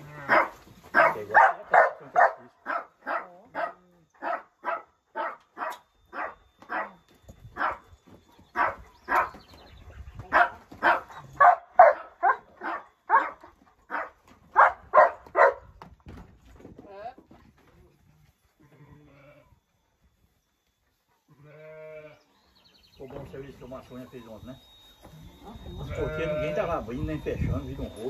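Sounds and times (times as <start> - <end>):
dog barking: 0.3 - 7.0, 7.6 - 7.8, 8.6 - 9.4, 10.3 - 15.7.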